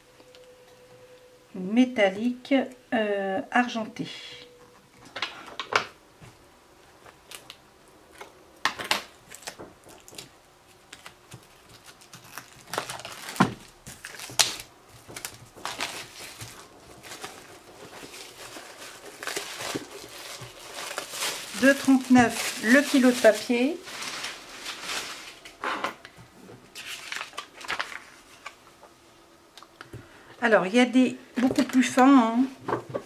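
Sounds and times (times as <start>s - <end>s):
plastic wrapping crinkling: 7.0s - 29.0s.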